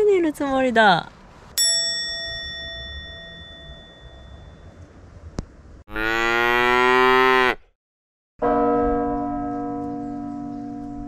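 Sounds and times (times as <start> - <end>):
bell-like ding: 1.6 - 4.8
low steady tone: 1.6 - 5.2.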